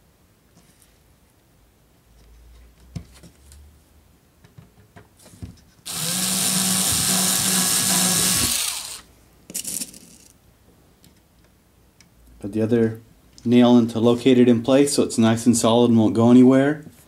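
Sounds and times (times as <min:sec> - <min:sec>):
cordless drill running: 0:05.9 - 0:09.1.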